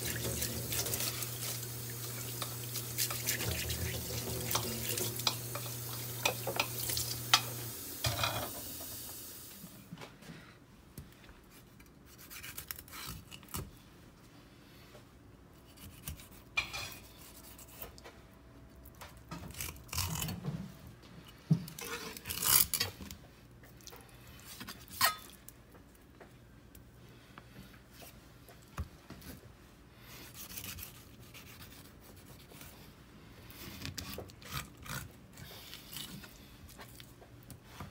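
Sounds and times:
tap water running into sink: 0.0 - 9.4
knife scraping on cutting board: 15.6 - 18.0, 21.8 - 23.1, 30.2 - 32.7.

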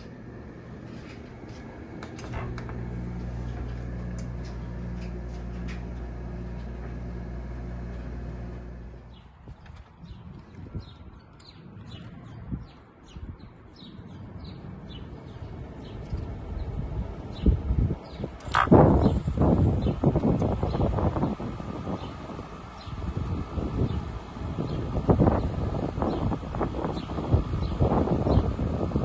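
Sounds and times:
air conditioner humming: 0.0 - 9.2, 15.0 - 29.0
birds chirping: 0.0 - 29.0.

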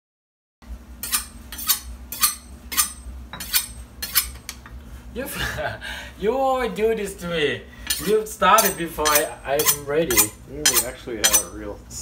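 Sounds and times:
steady low hum: 0.6 - 12.0
knife scraping on sharpening stone: 1.0 - 4.5, 7.9 - 11.6.

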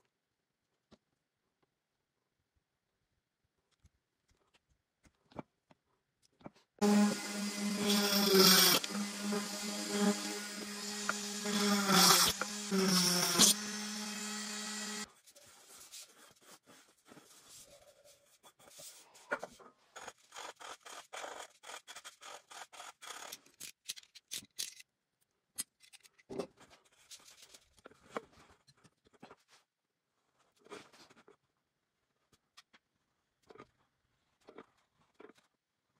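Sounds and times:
rotary tool whining: 6.8 - 15.1
sandpaper rubbing metal rim: 6.8 - 15.1.

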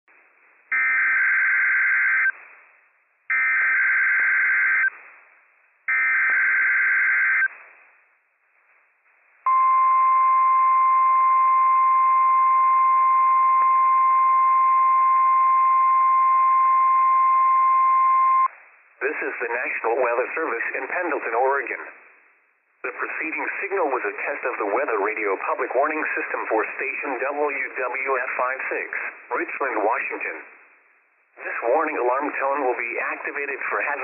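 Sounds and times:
radio hiss: 18.5 - 22.2, 22.8 - 30.8, 31.4 - 34.0.

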